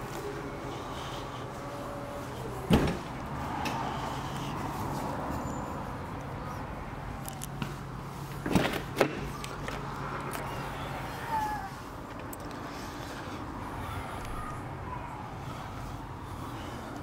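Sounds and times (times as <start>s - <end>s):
car tailgate thud: 2.7s - 3.1s
car door clunks: 2.7s - 3.8s.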